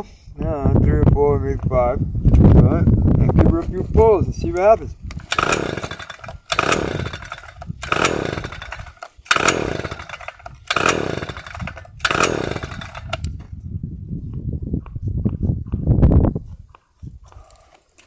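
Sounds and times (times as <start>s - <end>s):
recoil starter pulls: 5.1s - 13.4s
small engine turning over: 5.1s - 13.4s.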